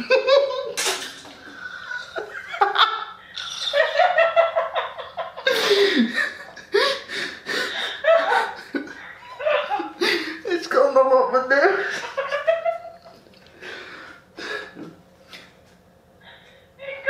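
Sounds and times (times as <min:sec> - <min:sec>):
man laughing hard: 0:00.0 - 0:00.8, 0:01.4 - 0:10.4.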